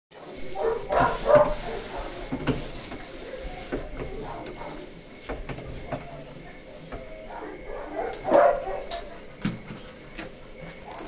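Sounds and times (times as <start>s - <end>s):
dog barking: 0.5s - 2.1s, 4.2s - 4.9s, 7.3s - 9.2s.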